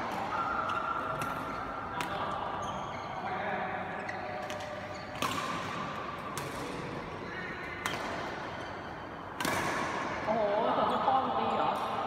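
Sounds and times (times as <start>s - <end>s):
racket hitting shuttlecock: 0.0s - 2.3s, 4.3s - 7.0s, 7.6s - 8.7s, 9.3s - 10.2s.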